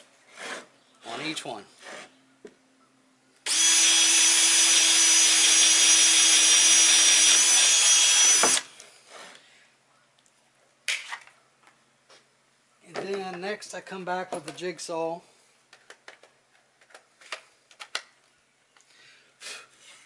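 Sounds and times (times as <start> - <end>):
cordless drill boring wood: 3.4 - 8.8.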